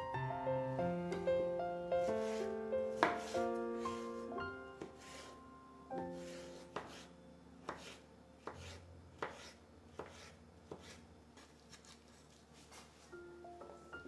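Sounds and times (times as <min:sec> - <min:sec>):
soft instrumental music: 0:00.0 - 0:06.8, 0:12.9 - 0:14.0.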